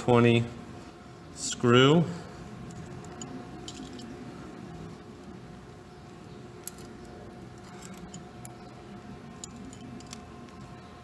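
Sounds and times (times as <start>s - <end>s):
metal parts clicking: 2.6s - 4.2s, 6.6s - 10.6s.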